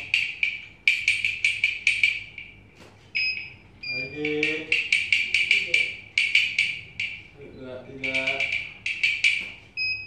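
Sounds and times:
music with clicky percussive beat: 0:00.0 - 0:10.0
short high beeps: 0:03.2 - 0:04.3.

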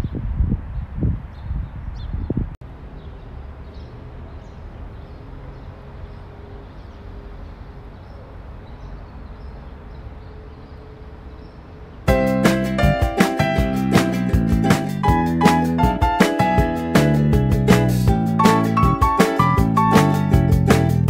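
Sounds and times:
background music with plucked notes: 0:12.1 - 0:21.0.

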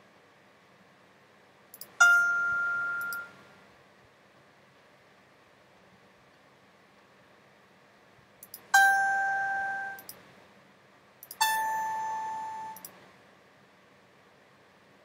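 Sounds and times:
synthesized piano notes: 0:02.0 - 0:03.3, 0:08.8 - 0:10.0.

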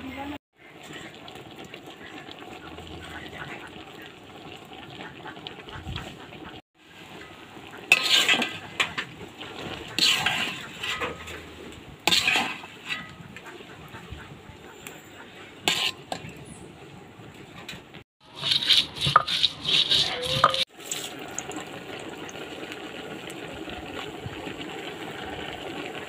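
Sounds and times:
food sizzling in oil: 0:00.6 - 0:13.1, 0:15.7 - 0:16.3, 0:18.2 - 0:26.0
metal spatula scraping a pan: 0:07.2 - 0:13.6, 0:15.6 - 0:16.6, 0:18.2 - 0:21.1.

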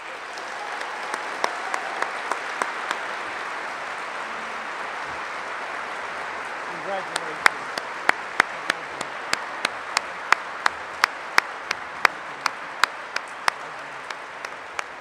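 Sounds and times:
audience applauding: 0:00.0 - 0:15.0
person clapping close: 0:07.0 - 0:15.0.

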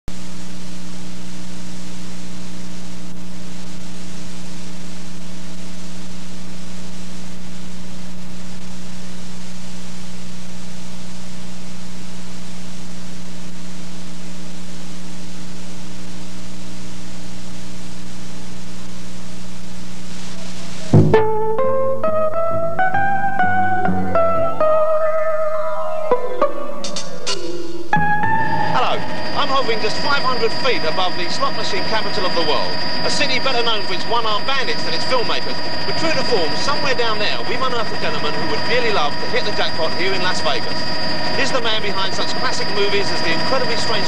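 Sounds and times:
tape hiss: 0:00.1 - 0:44.0.

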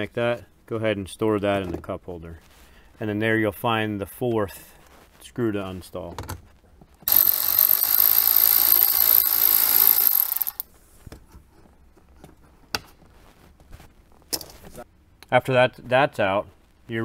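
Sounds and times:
electric ratchet whining: 0:07.1 - 0:10.6.

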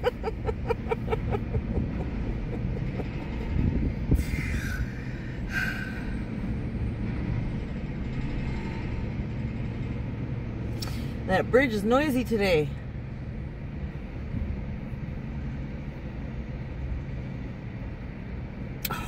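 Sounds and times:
woman chuckling: 0:00.0 - 0:04.8
bridge rumble: 0:00.0 - 0:19.0.

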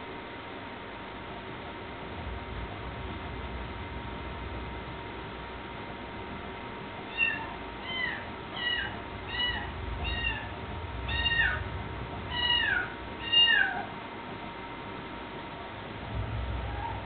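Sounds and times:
kitten meowing: 0:07.1 - 0:11.6, 0:12.3 - 0:13.9.

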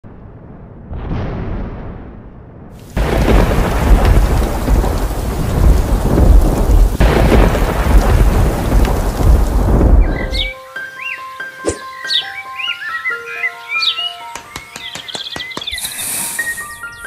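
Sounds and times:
thunder rumbling: 0:00.0 - 0:10.5
thunderclap: 0:00.0 - 0:10.5
heavy rain: 0:02.8 - 0:10.5.

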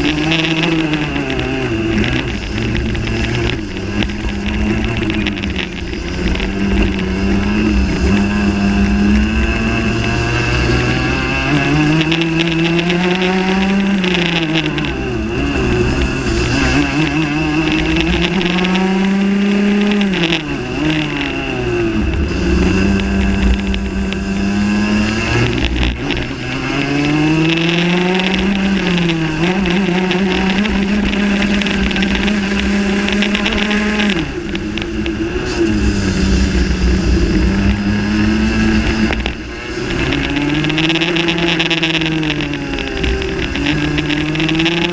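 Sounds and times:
kart engine revving: 0:00.0 - 0:44.9
wind rumble on microphone: 0:00.0 - 0:44.9.

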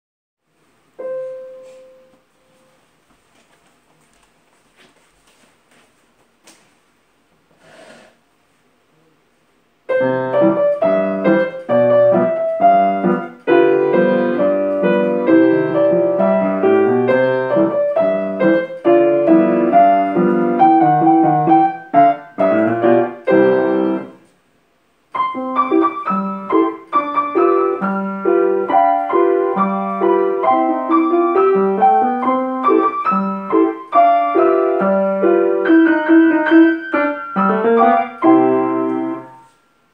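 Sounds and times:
grand piano playing: 0:00.9 - 0:02.3, 0:09.9 - 0:24.2, 0:25.1 - 0:39.5.

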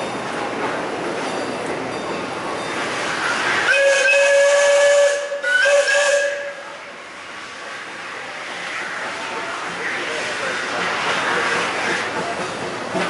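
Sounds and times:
steam hissing: 0:02.4 - 0:13.0
steam locomotive whistle: 0:03.3 - 0:06.9.

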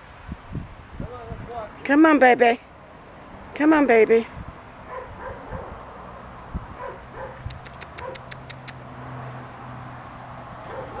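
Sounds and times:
sharp clicks: 0:07.4 - 0:08.8.

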